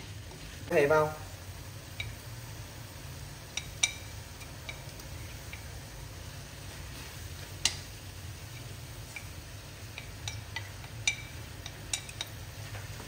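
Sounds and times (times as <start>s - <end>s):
chopsticks tapping bowl and wok: 1.9s - 2.2s, 3.5s - 5.7s, 7.5s - 7.9s, 8.5s - 12.9s.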